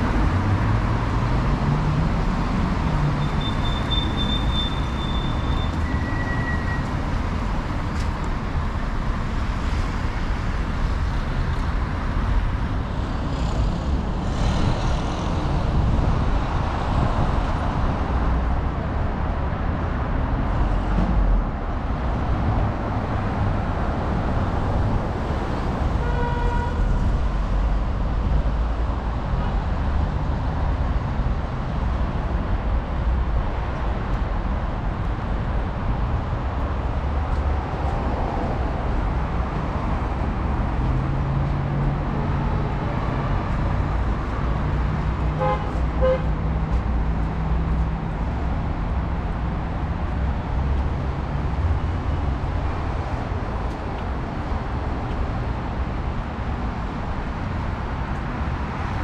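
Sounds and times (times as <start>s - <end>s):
street traffic passing: 0.0s - 59.0s
car horn toot: 26.0s - 26.8s, 45.4s - 46.3s.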